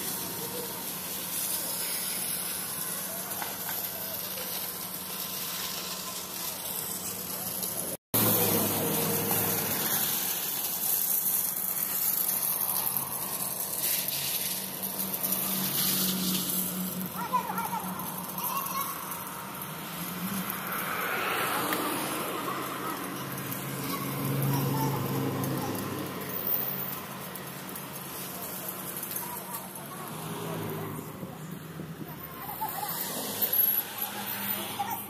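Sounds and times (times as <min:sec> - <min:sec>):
concrete pump engine humming: 0:00.0 - 0:20.8
constant hissing wash: 0:00.0 - 0:35.0.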